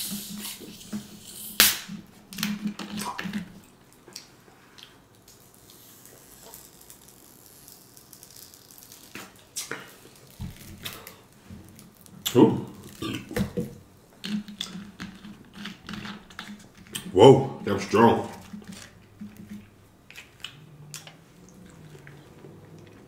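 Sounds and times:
sipping from plastic bottle: 0.0 - 1.9
chewing crunchy taco: 2.4 - 13.5, 14.1 - 23.0.

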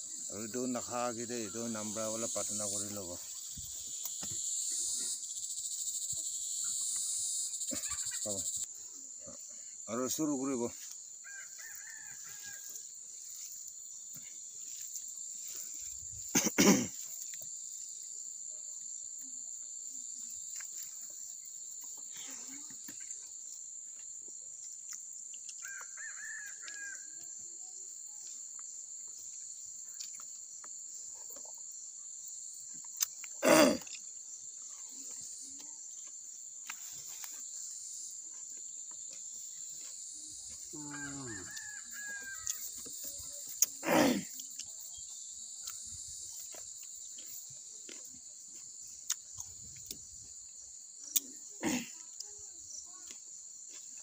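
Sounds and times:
high-pitched insect chorus: 0.0 - 54.0
eating sounds: 32.7 - 37.4, 42.4 - 44.8, 49.0 - 50.0.

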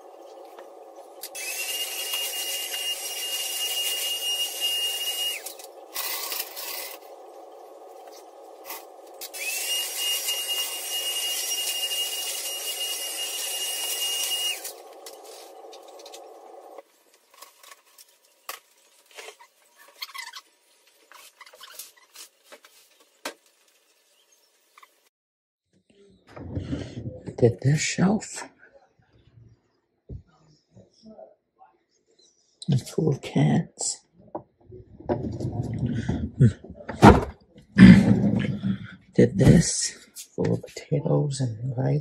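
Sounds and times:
small electric motor whining: 1.2 - 7.2, 8.0 - 16.8.

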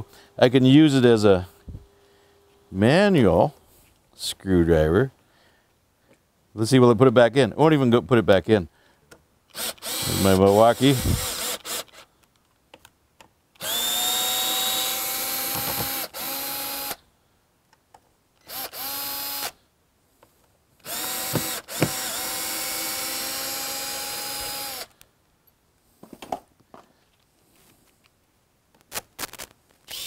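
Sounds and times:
cordless screwdriver motor running: 9.5 - 12.1, 13.6 - 17.0, 18.4 - 19.6, 20.8 - 24.9.

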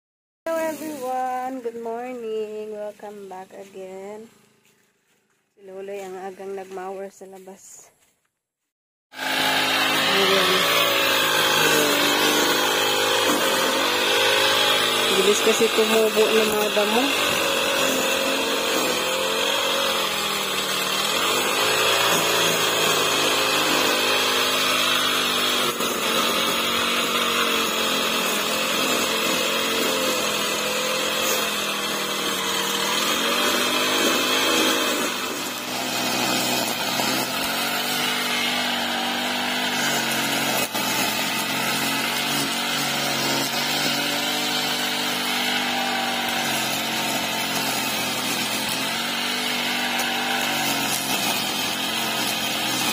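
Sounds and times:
brush cutter engine cutting grass: 0.5 - 7.5, 9.1 - 52.9.

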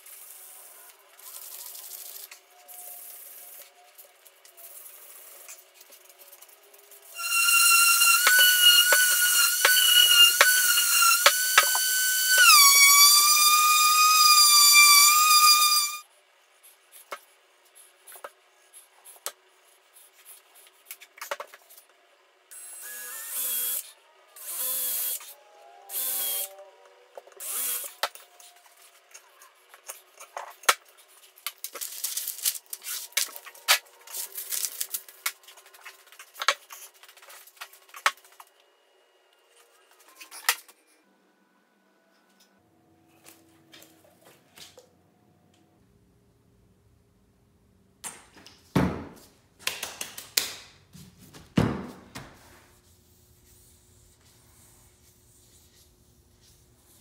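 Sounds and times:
cordless drill drilling wood: 7.2 - 16.0, 27.4 - 28.0
orbital sander whining: 7.2 - 16.0.

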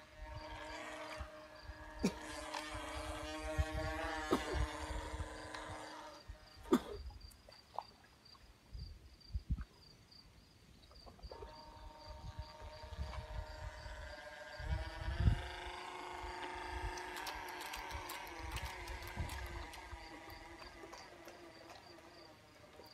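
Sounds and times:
electric boat motor whining: 0.0 - 6.6, 11.3 - 22.9
insects chirping: 0.0 - 22.9.

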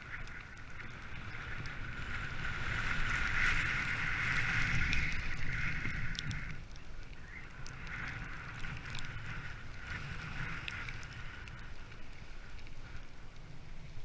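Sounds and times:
wind rumbling on microphone: 0.0 - 14.0
sled runners hissing on snow: 0.8 - 6.6.

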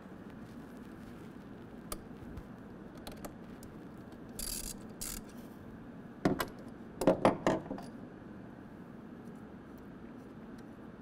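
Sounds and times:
ratchet clicking: 4.4 - 5.3.

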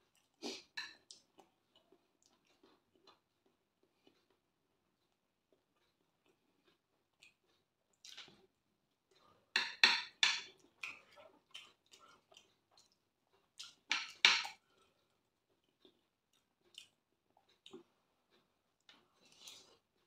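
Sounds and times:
person chewing: 0.0 - 9.5, 10.4 - 20.0.

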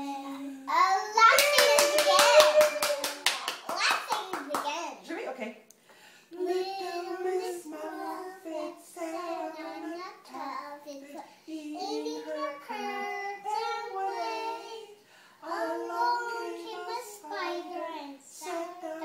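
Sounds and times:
girls singing: 6.3 - 19.0.

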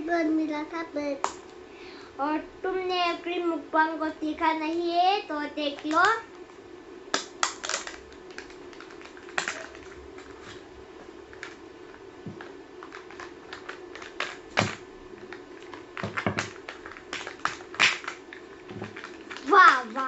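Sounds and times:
plastic packaging crinkling: 7.2 - 10.6, 12.3 - 20.0.

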